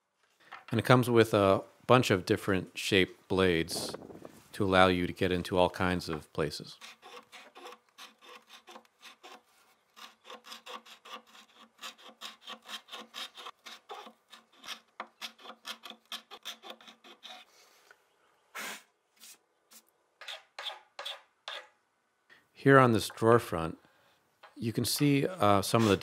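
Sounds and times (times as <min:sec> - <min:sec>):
hand scraper scraping wood: 0:06.8 - 0:17.5, 0:25.7 - 0:26.0.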